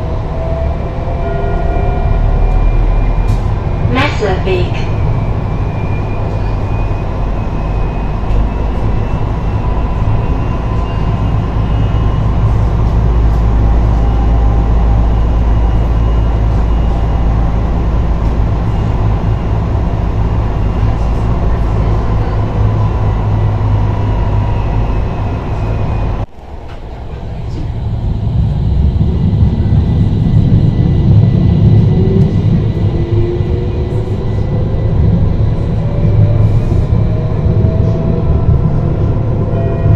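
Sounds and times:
tram wheels rumbling on rails: 0:00.0 - 0:39.9.

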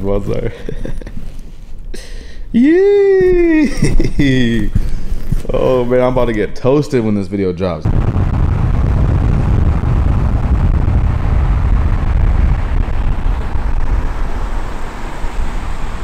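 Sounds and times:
motor vehicle rumbling: 0:07.9 - 0:16.0.

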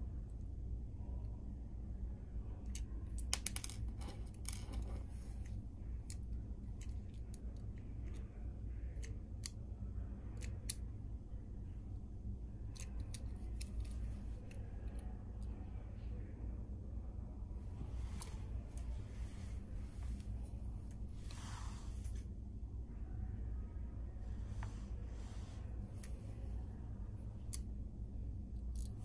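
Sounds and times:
steady low hum: 0:00.0 - 0:29.0.

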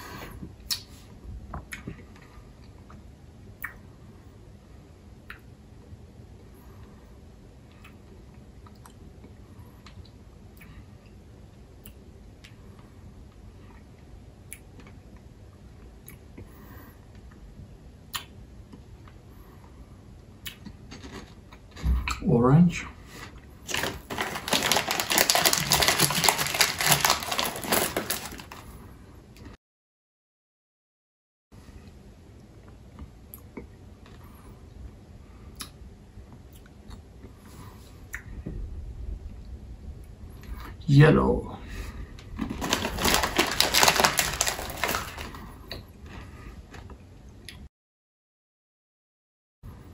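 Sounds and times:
person chewing candy: 0:20.4 - 0:21.8, 0:23.3 - 0:28.7, 0:42.4 - 0:47.6
candy crunching: 0:20.5 - 0:21.8, 0:23.2 - 0:28.8, 0:42.3 - 0:47.0.

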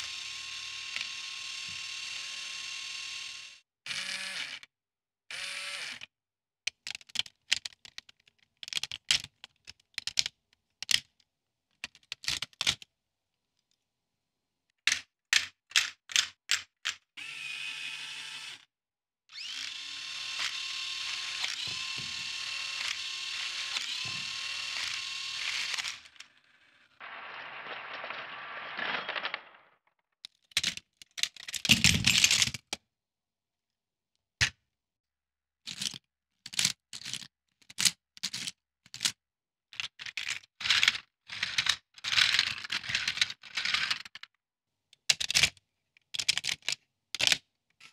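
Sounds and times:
electric motor whirring gears: 0:00.0 - 0:04.6, 0:19.3 - 0:26.7
sharp plastic clicks and knocks: 0:06.7 - 0:11.1
plastic parts clattering: 0:30.6 - 0:32.7, 0:40.0 - 0:44.3, 0:46.2 - 0:47.9.

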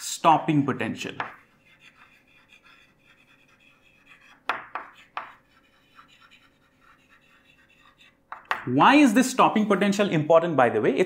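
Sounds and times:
sharp chalk strokes: 0:01.2 - 0:08.5
chalk scratching on chalkboard: 0:01.2 - 0:08.6.

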